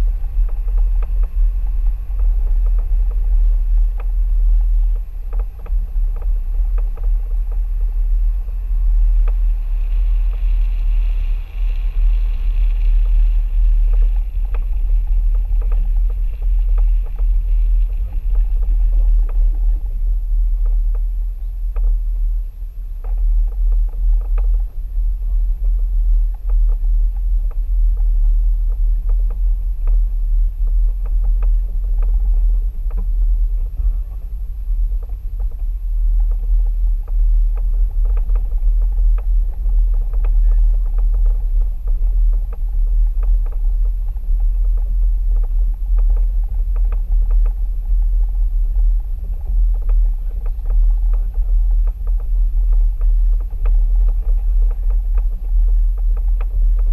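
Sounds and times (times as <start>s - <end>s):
gravel crackling under tyres: 0.0s - 56.9s
wind and road rumble: 0.0s - 56.9s.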